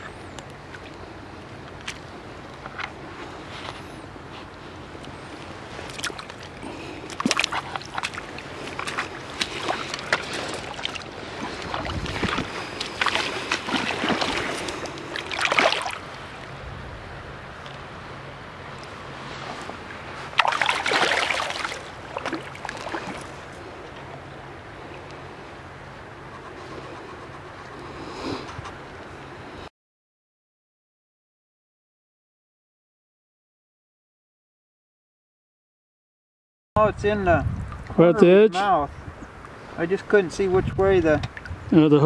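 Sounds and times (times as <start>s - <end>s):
river water splashing: 0.0s - 28.1s.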